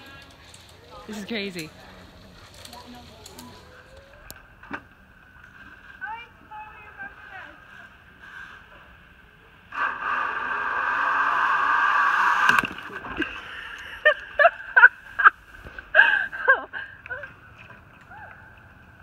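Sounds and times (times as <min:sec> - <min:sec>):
zip-line trolley whirring on cable: 0:09.7 - 0:12.6.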